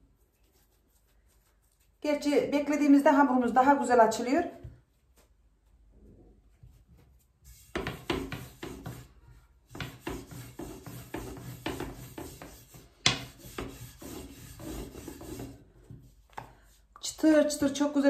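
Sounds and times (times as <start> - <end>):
rolling pin rolling dough: 6.7 - 16.8.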